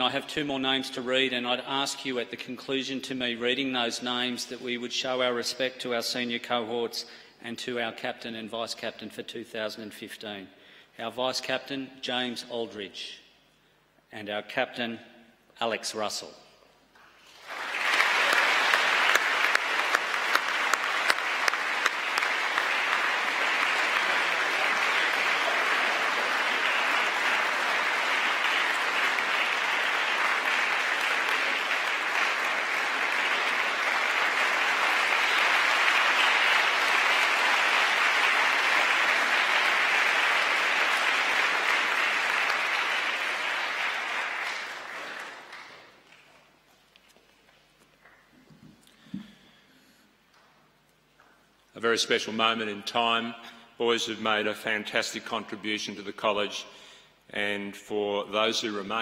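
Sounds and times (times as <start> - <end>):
sharp close claps: 16.9 - 46.3
large audience applauding: 17.0 - 46.4.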